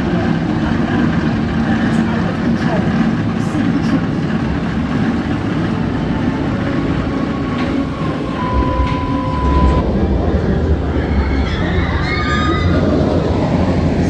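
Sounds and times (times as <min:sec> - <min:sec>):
roller coaster train rumbling: 0:00.0 - 0:14.0
thin steady whine: 0:05.5 - 0:10.6.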